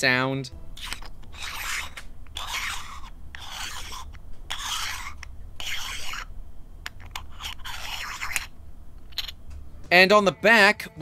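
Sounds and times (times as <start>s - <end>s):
lid grating on threads: 0.6s - 9.4s.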